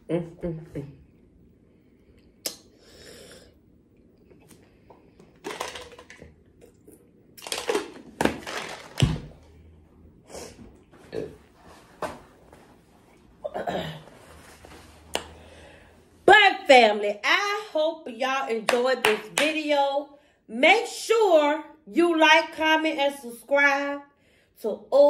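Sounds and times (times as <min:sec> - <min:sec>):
ice knocking in plastic tumbler: 0:05.2 - 0:06.4, 0:07.4 - 0:09.4.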